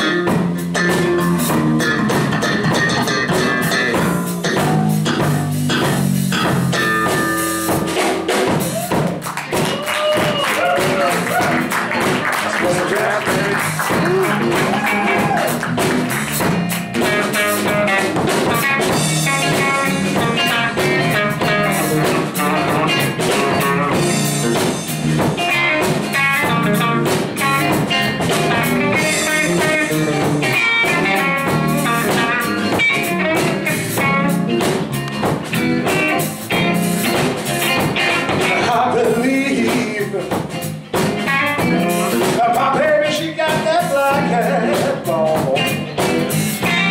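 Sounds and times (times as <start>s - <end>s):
drum kit: 0.0s - 46.9s
electric bass: 0.0s - 46.9s
electric guitar lead lines: 11.6s - 38.9s, 44.2s - 46.9s.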